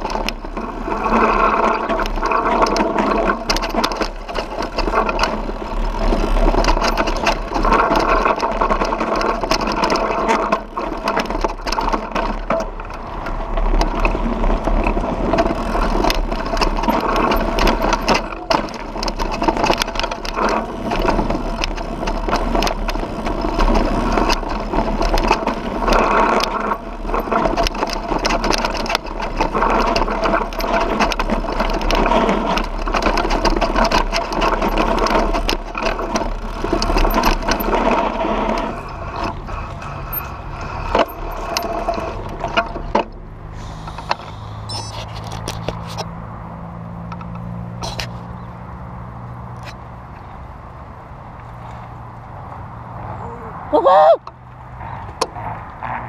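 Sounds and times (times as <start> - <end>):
bike rattling on rocky trail: 0.0 - 48.8
low rumble: 43.4 - 45.2.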